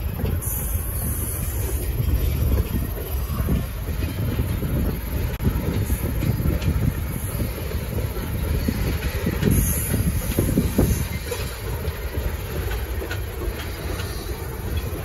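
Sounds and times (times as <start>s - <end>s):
rail joint clicks: 0.0s - 15.0s
train wheels rumbling on rail: 0.0s - 15.0s
high wheel squeal: 8.2s - 11.7s.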